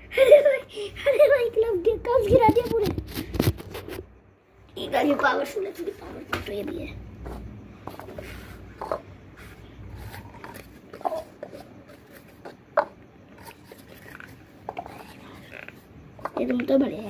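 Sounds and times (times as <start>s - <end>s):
paper cups tapping on stack: 7.2s - 9.1s, 10.0s - 16.8s.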